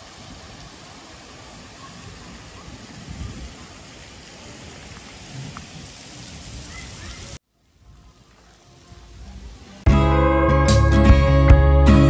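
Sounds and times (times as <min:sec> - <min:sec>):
wind buffeting microphone: 0:01.6 - 0:08.1.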